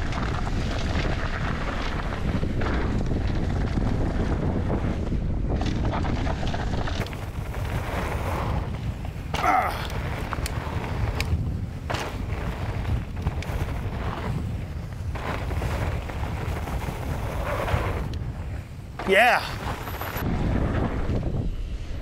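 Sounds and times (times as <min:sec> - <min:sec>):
wind buffeting microphone: 0:00.0 - 0:22.0
bike clicks and knocks: 0:05.0 - 0:17.1.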